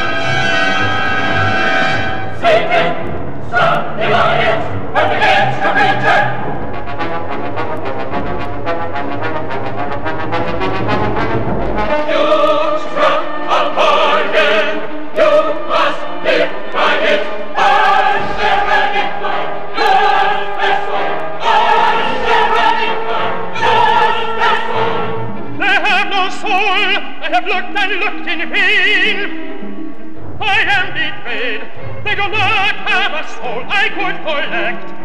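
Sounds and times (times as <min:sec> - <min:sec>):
operatic singing over orchestra: 0:00.0 - 0:07.2, 0:11.0 - 0:29.6, 0:30.4 - 0:35.0
low brass: 0:00.0 - 0:16.5.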